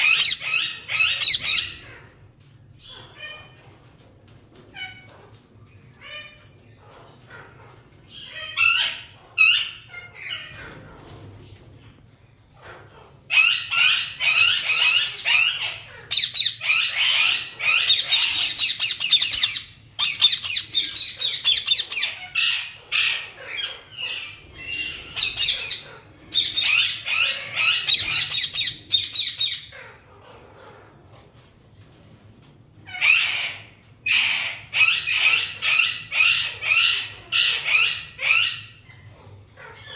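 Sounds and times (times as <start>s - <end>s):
parakeets calling: 0.0s - 2.0s, 13.0s - 29.8s, 33.0s - 39.9s.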